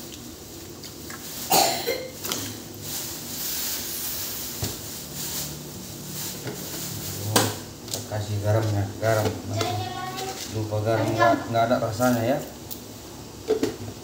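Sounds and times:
broth bubbling and hissing: 0.0s - 7.8s.

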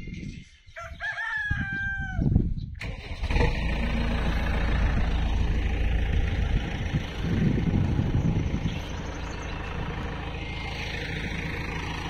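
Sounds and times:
rooster crowing: 0.8s - 2.3s
diesel engine running: 2.8s - 12.0s.

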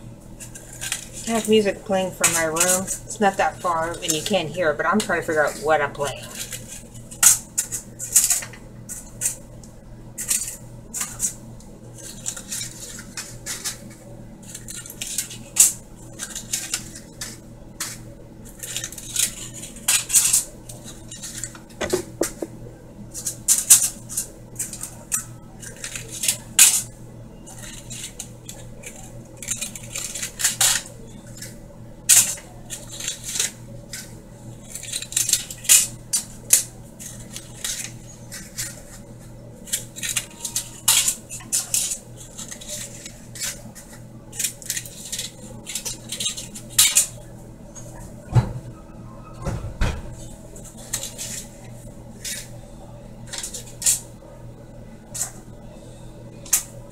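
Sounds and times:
steady low hum: 0.0s - 56.9s
utensils and dishes clinking: 0.6s - 9.4s, 39.6s - 48.6s.

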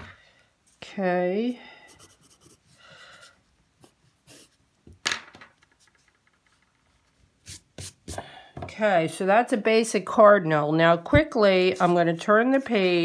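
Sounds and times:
pencil sketching on paper: 1.9s - 2.8s.

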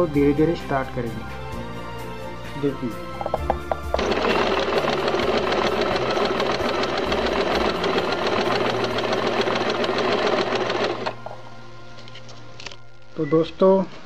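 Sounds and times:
sewing machine stitching: 3.9s - 11.2s.

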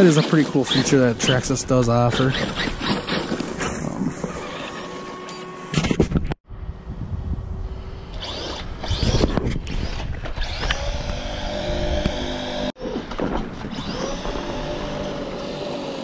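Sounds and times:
electric motor whining: 2.2s - 6.0s, 7.6s - 12.8s, 13.6s - 16.0s
low rumble: 6.4s - 9.0s.

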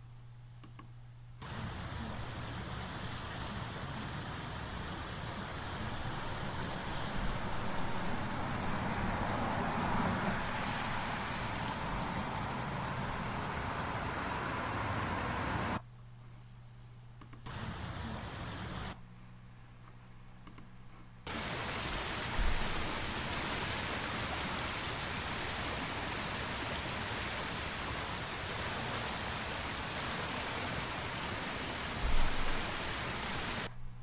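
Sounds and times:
faint low hum: 0.0s - 9.9s
creek water rushing: 1.4s - 15.8s, 17.5s - 18.9s, 21.3s - 33.7s.

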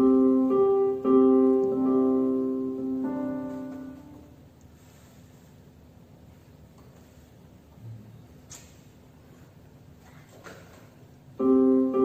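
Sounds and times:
upright piano chords: 0.0s - 4.6s, 11.3s - 12.0s.

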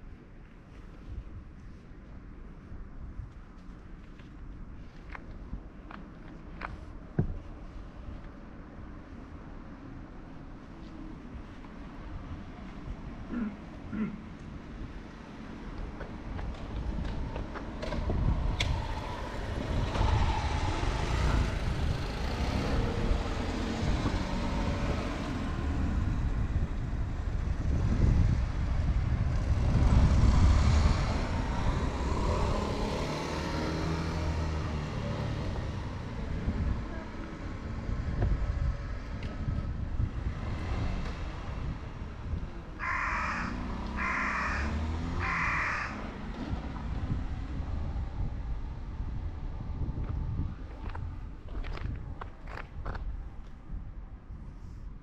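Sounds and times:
crow cawing: 42.8s - 46.0s.

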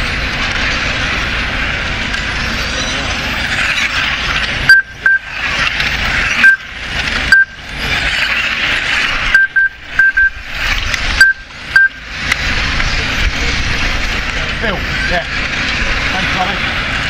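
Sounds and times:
electric model cars whirring: 0.0s - 17.0s
short high electronic beeps: 4.7s - 5.4s, 6.4s - 6.7s, 7.3s - 7.6s, 9.2s - 10.5s, 11.2s - 12.0s.

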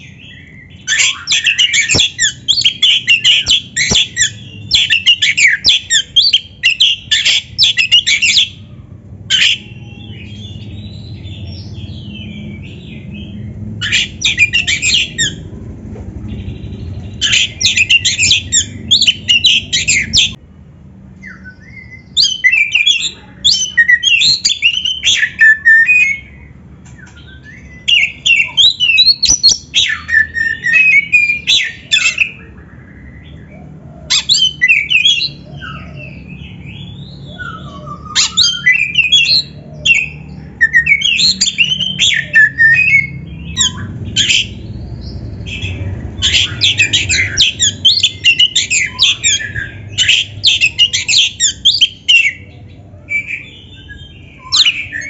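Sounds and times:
bird singing whistles: 0.0s - 8.6s, 13.8s - 15.4s, 17.2s - 20.4s, 21.2s - 26.4s, 34.1s - 52.5s, 53.1s - 55.0s.

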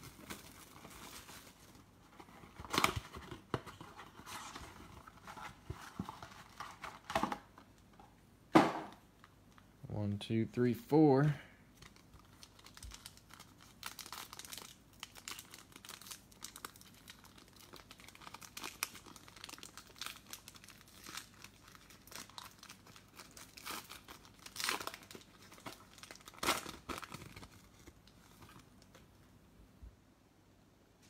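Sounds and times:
foil pack crinkling: 0.0s - 7.2s, 11.7s - 29.0s
foil pack ripping: 11.9s - 28.5s.

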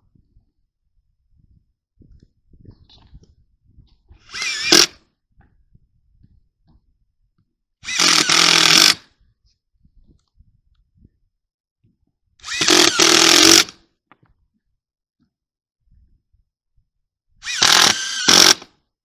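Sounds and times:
cordless drill driving screws: 4.2s - 5.0s, 7.8s - 9.1s, 12.4s - 13.8s, 17.4s - 18.7s.

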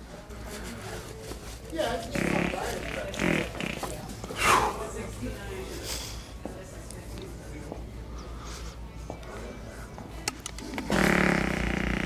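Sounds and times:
loud buzzy fart sound: 2.1s - 3.9s, 10.8s - 12.0s.

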